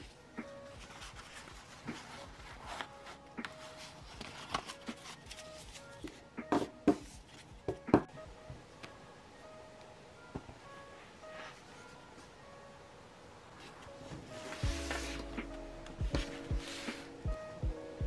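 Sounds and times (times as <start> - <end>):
paper rustling: 0.0 - 6.2.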